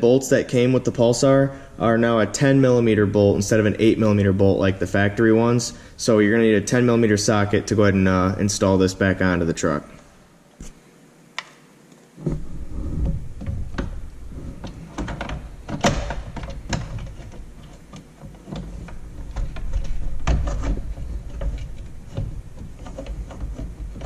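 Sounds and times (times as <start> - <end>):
low rustling rumble: 12.2 - 15.7
plastic and metal clunks: 12.2 - 24.0.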